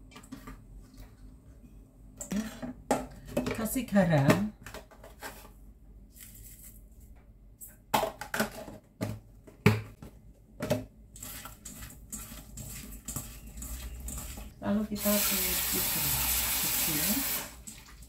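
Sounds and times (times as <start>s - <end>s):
hands tossing food in steel bowl: 11.2s - 14.6s.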